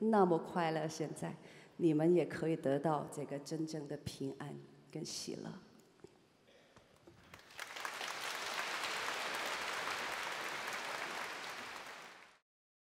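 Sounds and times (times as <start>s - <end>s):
audience applauding: 7.2s - 12.4s.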